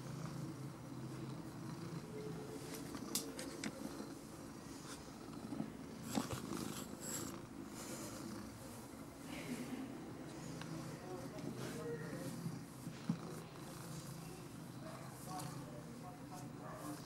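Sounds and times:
cat purring: 0:00.0 - 0:17.0
fur brushing microphone: 0:10.4 - 0:17.0.

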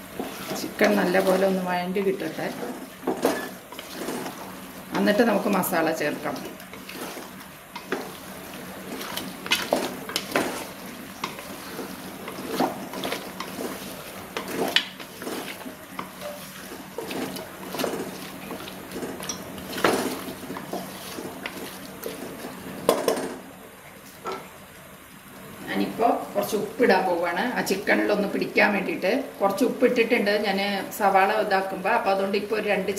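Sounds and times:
spatula scraping pot: 0:00.0 - 0:22.9
food sizzling: 0:00.0 - 0:31.8.

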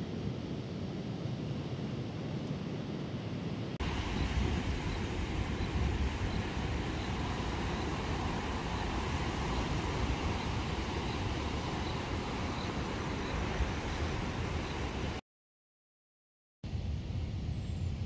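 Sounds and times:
surf breaking on beach: 0:03.8 - 0:15.2.

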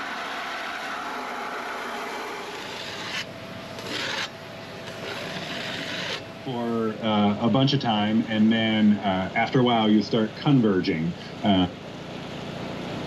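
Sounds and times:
metal scraper rasping: 0:01.9 - 0:04.3, 0:04.9 - 0:06.2.

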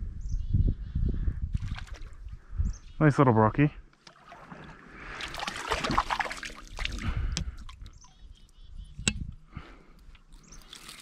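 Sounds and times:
fish splashing in water: 0:04.1 - 0:07.9.

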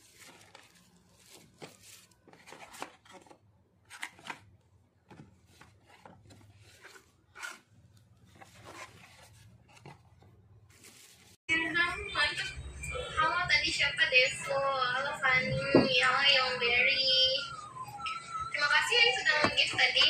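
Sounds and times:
tissue paper rustling: 0:00.0 - 0:04.4, 0:05.4 - 0:11.4.

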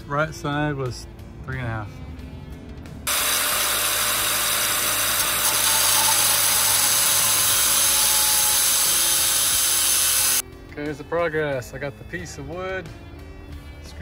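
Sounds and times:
angle grinder cutting metal: 0:03.1 - 0:10.4.

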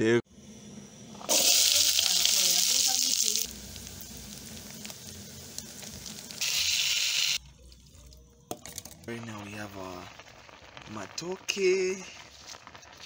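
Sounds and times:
loud hiss: 0:00.4 - 0:07.4
broth pouring: 0:01.0 - 0:13.0
vegetables frying in a pot: 0:01.1 - 0:07.5, 0:08.6 - 0:13.0.

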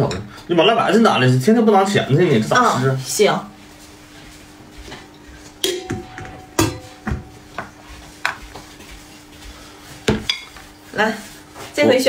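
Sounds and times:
metal bowls clanking: 0:05.0 - 0:08.4.

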